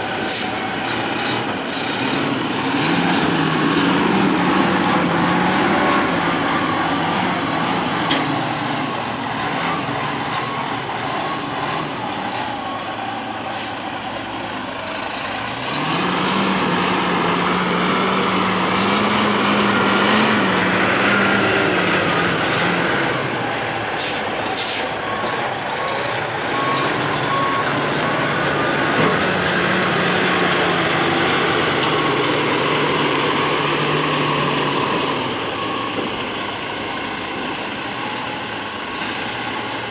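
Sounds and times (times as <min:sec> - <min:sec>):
truck diesel engine running: 0:00.0 - 0:39.9
reversing beeper: 0:15.2 - 0:29.1.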